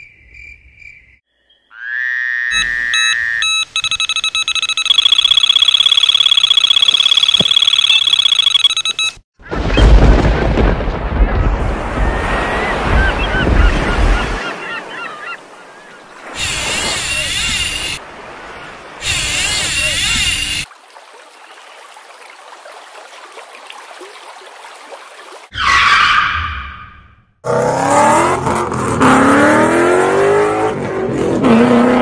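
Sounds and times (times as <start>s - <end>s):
wavering high chirps: 2.5s - 8.7s
stuttering electronic tones: 2.5s - 9.2s.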